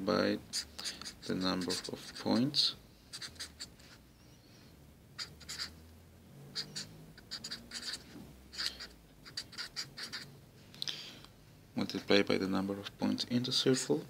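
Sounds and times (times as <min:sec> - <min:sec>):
marker scratching on paper: 0:00.5 - 0:04.1, 0:05.2 - 0:05.8, 0:06.5 - 0:10.3.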